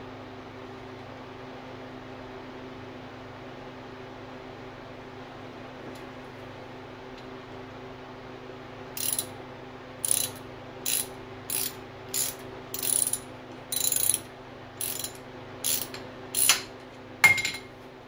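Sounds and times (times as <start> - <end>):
ratchet pawl clicking: 9.0 - 9.3, 10.0 - 16.6.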